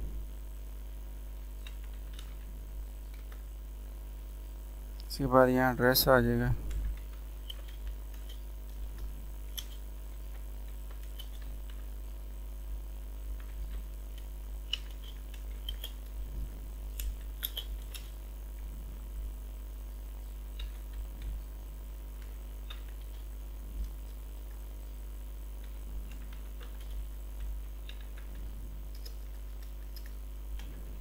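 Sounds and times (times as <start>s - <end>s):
steady low hum: 0.0s - 31.0s
keyboard typing: 1.6s - 3.4s, 6.4s - 12.0s, 13.3s - 18.7s, 25.6s - 31.0s.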